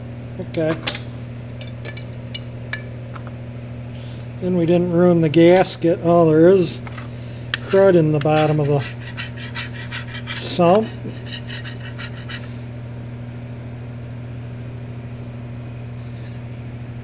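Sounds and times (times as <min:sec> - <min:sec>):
steady low hum: 0:00.0 - 0:17.0
putty knife scraping sludge: 0:07.6 - 0:12.5.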